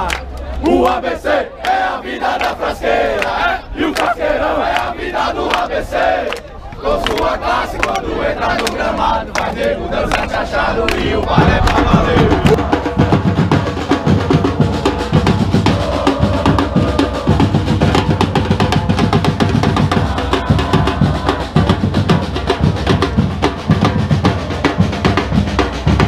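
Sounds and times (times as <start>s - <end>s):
bass and snare drums playing: 10.9s - 26.0s.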